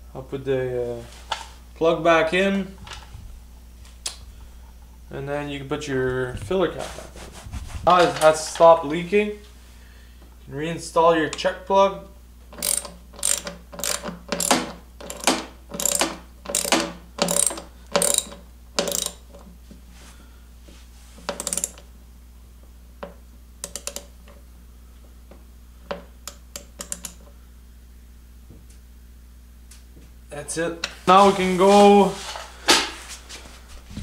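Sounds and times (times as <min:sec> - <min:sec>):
ratchet wrench clicking: 0:12.5 - 0:19.3, 0:21.3 - 0:21.8, 0:23.6 - 0:24.1, 0:26.3 - 0:27.2.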